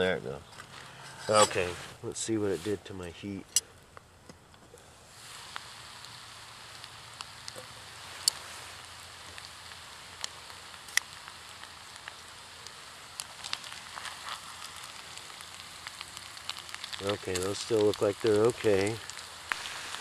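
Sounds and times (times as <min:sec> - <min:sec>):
food frying in oil: 0:04.8 - 0:20.0.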